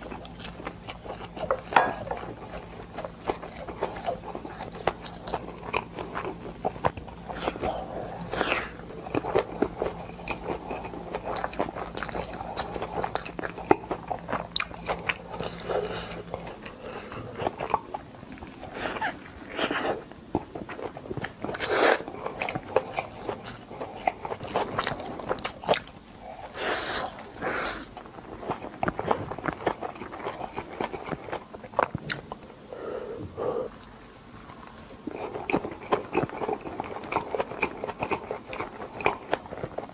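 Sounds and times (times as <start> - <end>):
chewing and biting food: 0.0 - 32.6, 33.7 - 39.9.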